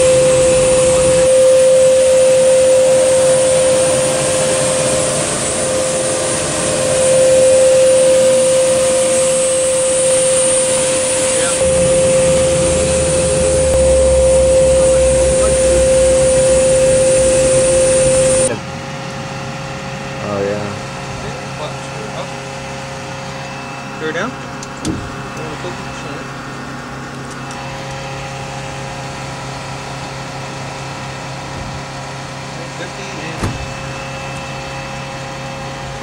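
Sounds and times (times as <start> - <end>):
deep rumble: 0.0 - 18.6
gas turbine whine: 0.0 - 36.0.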